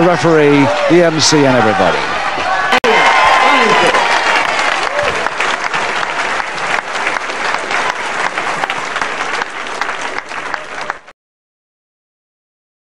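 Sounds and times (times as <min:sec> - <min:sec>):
crowd applauding: 0:02.4 - 0:11.1.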